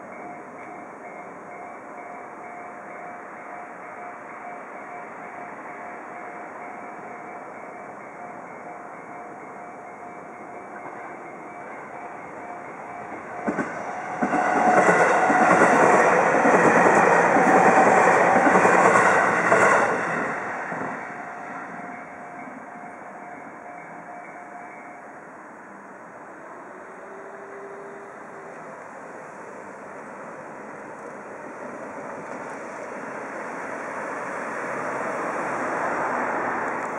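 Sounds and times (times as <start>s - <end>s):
rail joint clicks: 0.0s - 25.0s, 30.8s - 33.0s, 35.9s - 36.9s
train wheels rushing on rail: 0.0s - 25.1s
crossing warning bell ringing: 0.0s - 28.7s.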